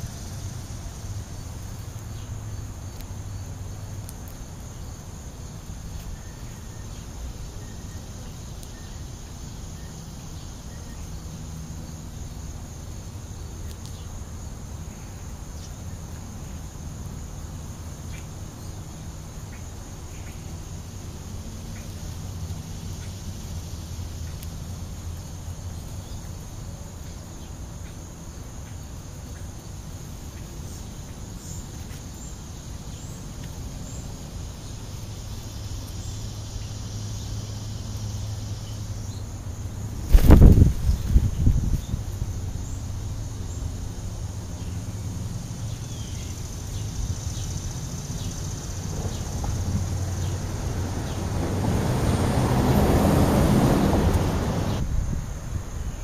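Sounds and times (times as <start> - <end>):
insects chirring: 0.0 - 56.0.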